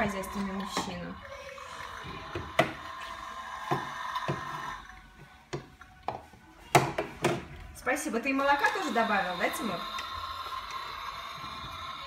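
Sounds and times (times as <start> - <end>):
plastic cups clacking on table: 0.0 - 7.6.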